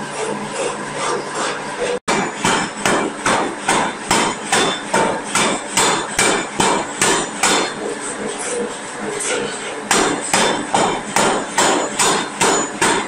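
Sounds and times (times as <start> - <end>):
steam hammer striking metal: 2.1 - 7.9, 9.9 - 13.0.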